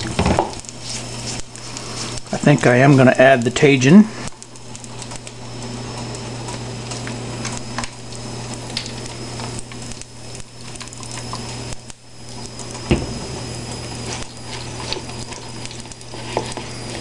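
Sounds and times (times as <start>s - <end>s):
low hum: 4.2s - 17.0s.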